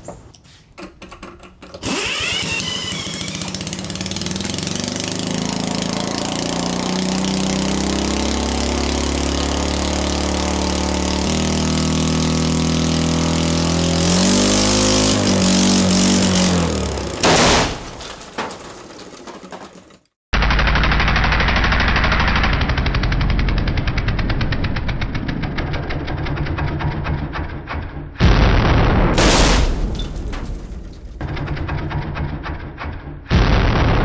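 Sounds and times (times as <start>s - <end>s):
small engine running: 1.8s - 17.2s, 20.4s - 26.8s
loud engine bang: 15.0s - 19.1s, 28.2s - 32.0s, 33.3s - 34.0s.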